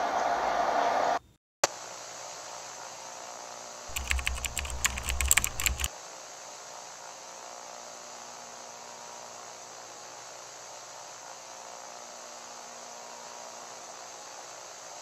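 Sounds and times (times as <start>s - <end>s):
keyboard key clicks: 3.9s - 5.9s.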